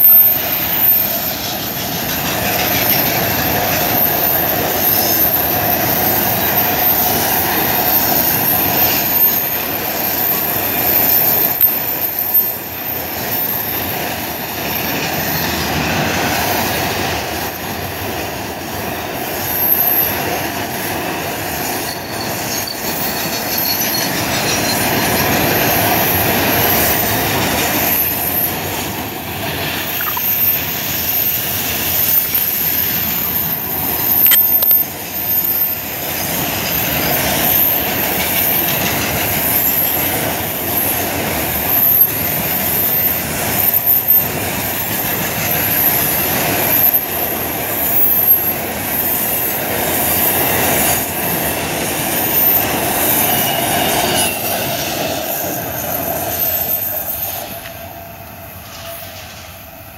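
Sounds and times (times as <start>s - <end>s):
high-pitched wheel squeal: 0.0s - 1.8s, 21.7s - 28.6s, 52.0s - 57.8s
steel wheels rumbling on rails: 0.0s - 59.9s.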